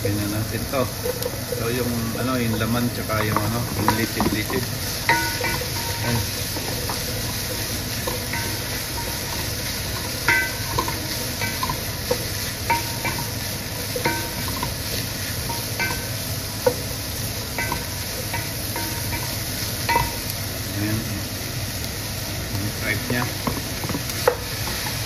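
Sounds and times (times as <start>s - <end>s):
meat sizzling in a pot: 0.0s - 25.0s
spatula clinking against pot: 2.3s - 16.9s, 17.6s - 20.3s.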